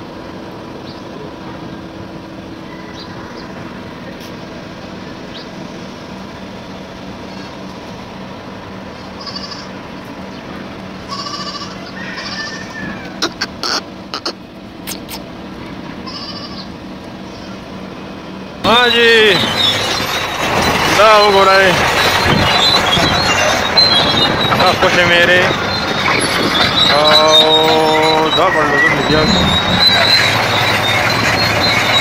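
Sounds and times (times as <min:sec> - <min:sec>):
animal bleating: 0:09.2 - 0:09.8, 0:11.1 - 0:14.4, 0:16.0 - 0:17.6.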